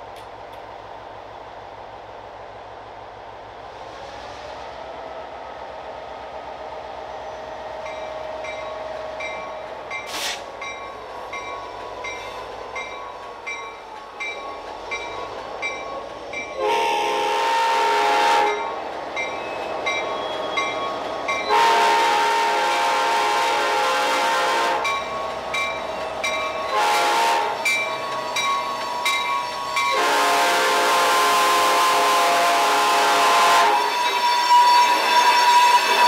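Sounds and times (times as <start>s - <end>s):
rail vehicle rumble: 0.0s - 36.0s
locomotive air horn blasts: 16.6s - 18.7s, 21.5s - 25.0s, 26.6s - 27.7s, 29.9s - 36.0s.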